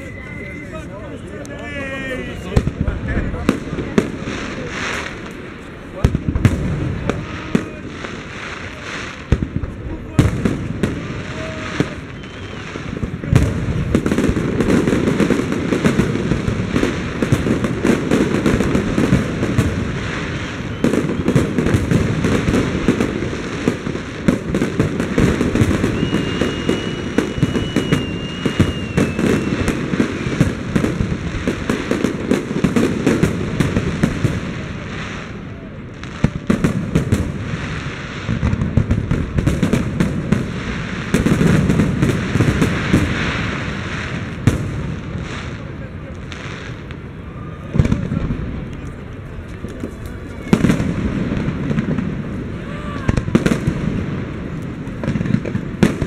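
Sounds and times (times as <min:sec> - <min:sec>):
high firework whistle: 0:00.0 - 0:01.5, 0:10.5 - 0:15.0, 0:19.6 - 0:23.1, 0:25.0 - 0:30.9
fireworks bangs and crackling: 0:00.0 - 0:56.0.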